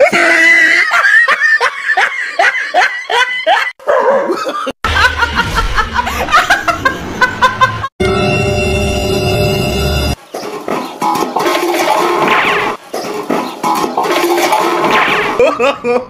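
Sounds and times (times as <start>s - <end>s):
woman laughing hard: 0.0s - 7.9s, 15.4s - 16.0s.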